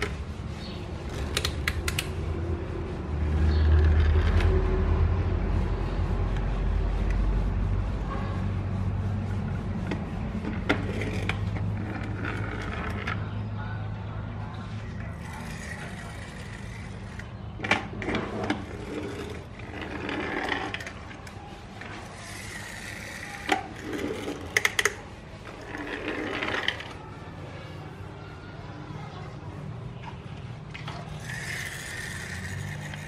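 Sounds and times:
toy cars rolling on wood: 0.0s - 5.3s, 9.3s - 13.5s, 14.3s - 27.7s, 30.6s - 33.0s
toy cars clicking and knocking: 1.0s - 2.4s, 3.3s - 4.8s, 15.0s - 27.0s, 30.8s - 33.0s.

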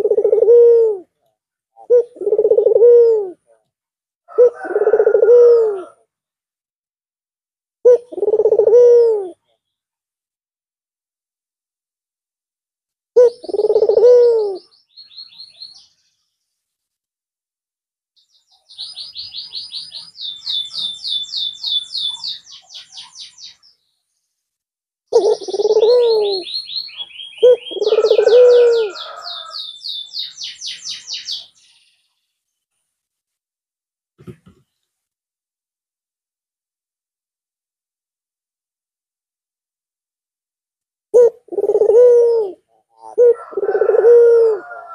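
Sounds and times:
dove cooing: 0.0s - 1.1s, 1.8s - 3.6s, 4.3s - 6.0s, 7.8s - 9.4s, 13.2s - 14.7s, 25.1s - 29.6s, 41.1s - 44.9s.

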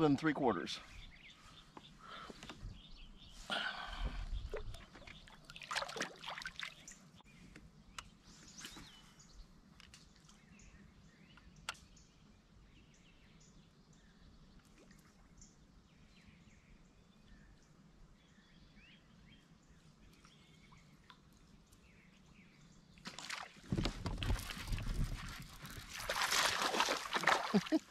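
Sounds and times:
water splashing and dripping: 4.5s - 7.0s, 23.0s - 27.9s.

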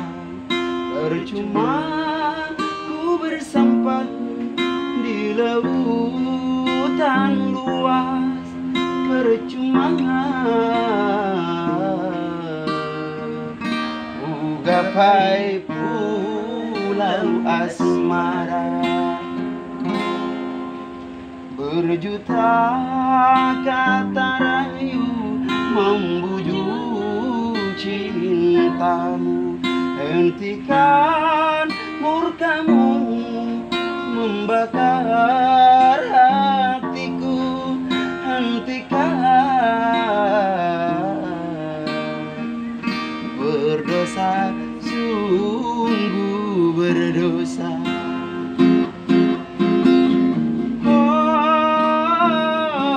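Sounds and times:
person singing: 0.0s - 20.4s, 21.5s - 49.1s, 50.7s - 52.9s
strummed acoustic guitar: 0.0s - 52.9s.

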